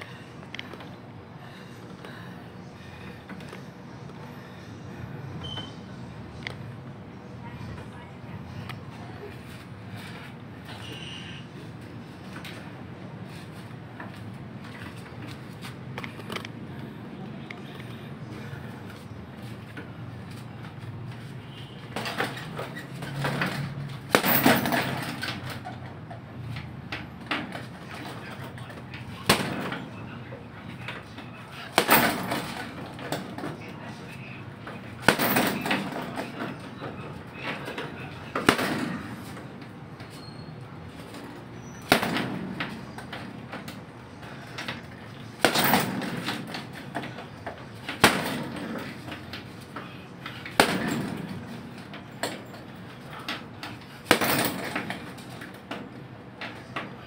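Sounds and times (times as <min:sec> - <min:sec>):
punches hitting heavy bag: 0:24.1 - 0:25.0, 0:31.7 - 0:32.7, 0:50.5 - 0:51.2.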